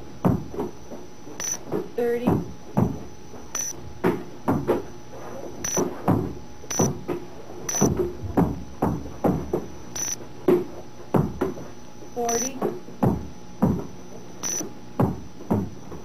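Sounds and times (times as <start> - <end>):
balls bouncing on hard floor: 0.2 - 3.1, 3.9 - 4.9, 5.7 - 9.7, 10.4 - 11.7, 12.3 - 14.0, 15.0 - 16.0.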